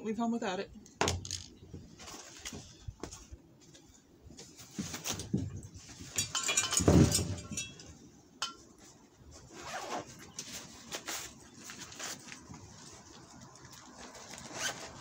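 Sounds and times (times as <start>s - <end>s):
light metallic clinks: 6.1s - 8.7s
fabric rustling in backpack: 9.4s - 15.0s.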